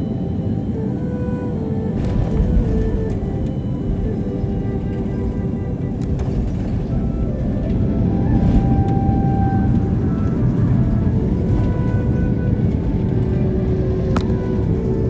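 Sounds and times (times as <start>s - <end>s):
jet engine noise: 0.0s - 15.0s
quiet background music: 0.0s - 15.0s
wheels rumbling on runway: 1.8s - 15.0s.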